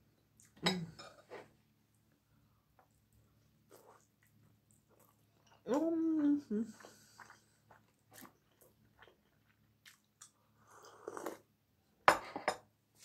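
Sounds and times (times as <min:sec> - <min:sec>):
person chewing: 0:06.8 - 0:11.4.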